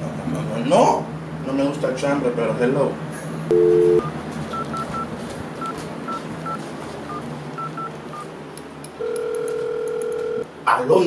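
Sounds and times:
telephone ringing tone: 0:03.5 - 0:05.1, 0:09.0 - 0:10.4
telephone keypad beeps: 0:03.5 - 0:06.6, 0:09.0 - 0:10.4.

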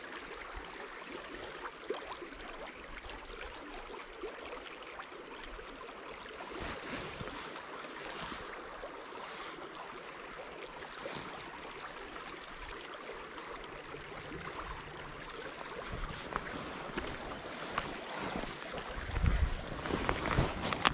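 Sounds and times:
river water moving: 0:00.0 - 0:20.9
wind: 0:00.0 - 0:20.9
gloved hands handling fishing line: 0:19.2 - 0:20.9.

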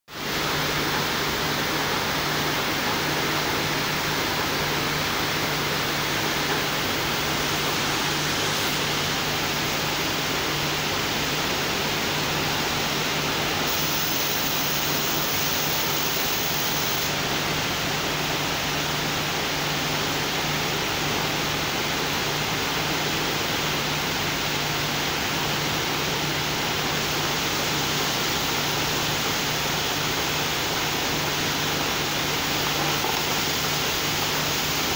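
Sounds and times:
sharp high hiss: 0:13.6 - 0:17.2.

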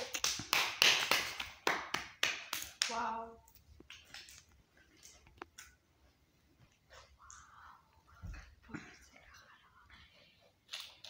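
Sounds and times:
puppy claws on tiled floor: 0:02.6 - 0:07.5, 0:09.1 - 0:11.0.

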